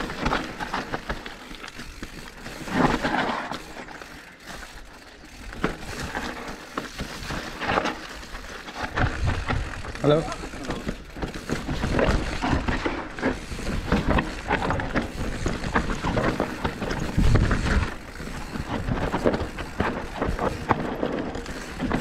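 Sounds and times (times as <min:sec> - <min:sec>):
bike rattling and knocking: 0:00.0 - 0:22.0
bike tyre rumble on dirt: 0:00.0 - 0:22.0
wind on microphone: 0:16.9 - 0:18.0.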